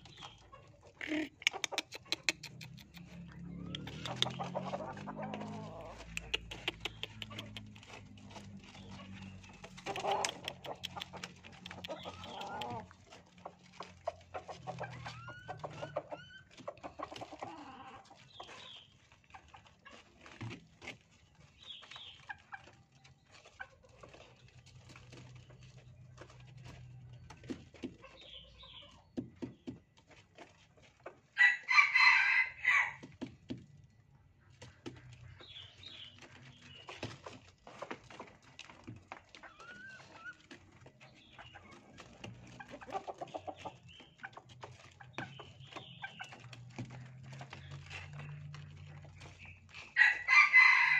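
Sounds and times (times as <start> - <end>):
junglefowl clucking and chirping: 0.0 - 20.5, 27.4 - 29.5, 30.4 - 33.0, 34.4 - 50.9
rooster crowing: 31.4 - 33.0, 50.0 - 50.9.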